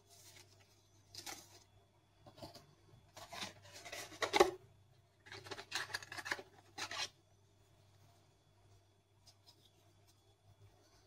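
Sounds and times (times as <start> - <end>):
paper and cardboard rustling: 0.0 - 1.7, 2.3 - 4.6.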